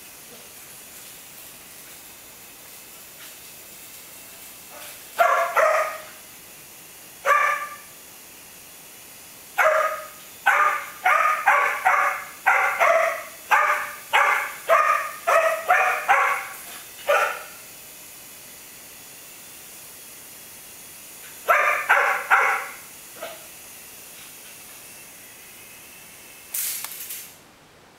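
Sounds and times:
dog barking: 0:04.7 - 0:06.2, 0:07.2 - 0:07.9, 0:09.6 - 0:17.6, 0:21.4 - 0:23.5.

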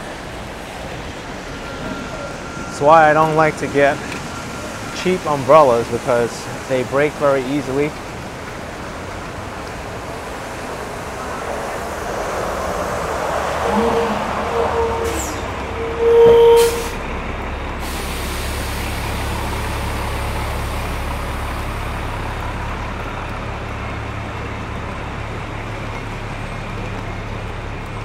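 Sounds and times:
low rumble of engines: 0:00.0 - 0:28.0
vehicle horn honking: 0:13.6 - 0:17.0.

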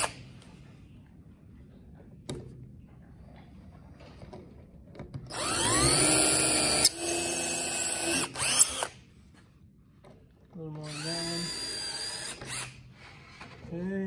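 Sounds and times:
cordless drill whining: 0:05.3 - 0:09.0, 0:10.8 - 0:13.5.

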